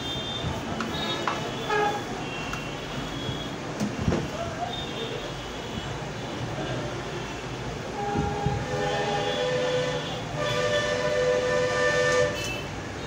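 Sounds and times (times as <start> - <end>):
horn blasts: 7.9 - 12.7.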